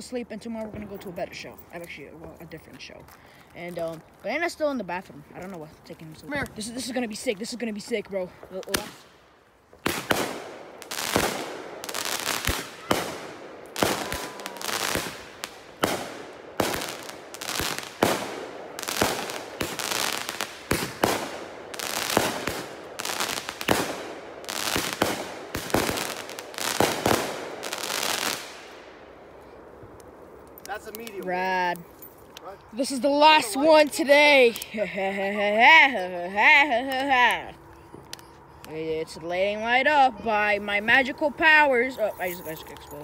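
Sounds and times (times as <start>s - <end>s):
fireworks banging and crackling: 0.4s - 4.0s, 6.2s - 9.1s, 9.7s - 28.8s.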